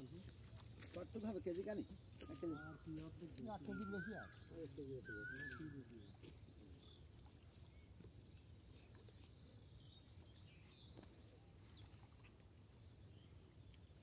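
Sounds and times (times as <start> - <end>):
faint bird chirps: 0.0 - 8.1.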